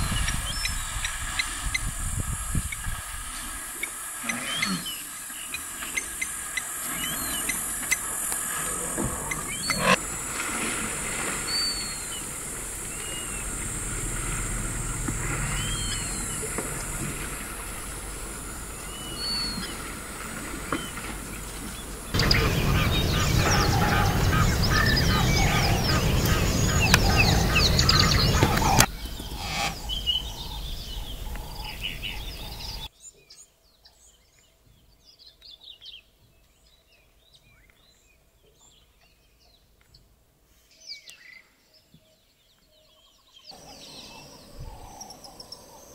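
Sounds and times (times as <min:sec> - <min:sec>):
steady high hiss: 0:00.0 - 0:32.9
whistled bird calls: 0:03.8 - 0:08.1, 0:08.8 - 0:10.0, 0:11.4 - 0:20.0, 0:20.7 - 0:32.9
birds chattering: 0:03.8 - 0:32.9, 0:43.0 - 0:45.9
faint bird chirps: 0:11.4 - 0:19.9, 0:21.8 - 0:34.0.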